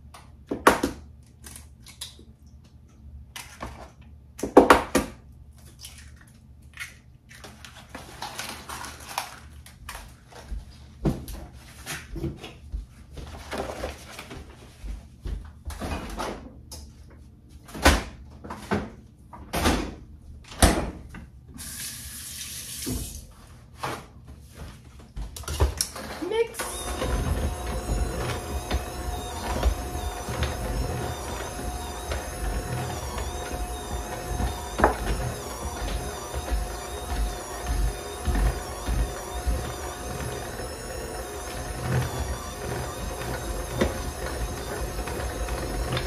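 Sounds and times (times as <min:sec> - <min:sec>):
tap running: 0:26.6 - 0:46.0.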